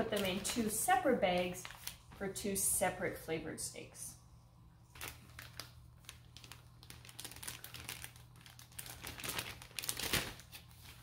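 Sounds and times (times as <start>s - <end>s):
plastic bag crinkling: 0.0s - 2.4s, 4.9s - 11.0s
steady low hum: 0.0s - 8.8s.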